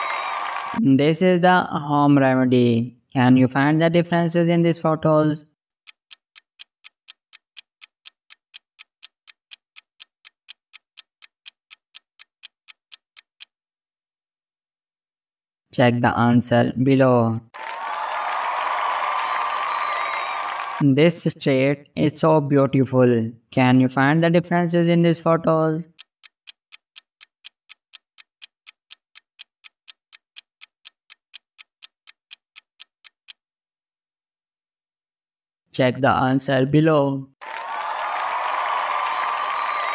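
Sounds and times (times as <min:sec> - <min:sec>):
countdown timer ticking: 0:05.8 - 0:13.5, 0:24.7 - 0:33.4.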